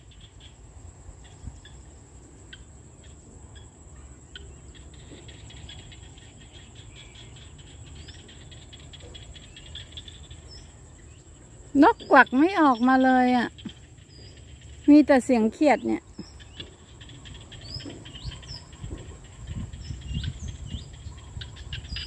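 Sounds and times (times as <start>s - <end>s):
chorus of frogs chirping: 0.0s - 22.0s.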